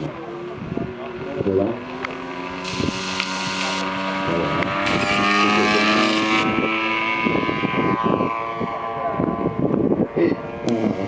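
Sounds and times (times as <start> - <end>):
model airplane engine running: 2.6 - 3.9.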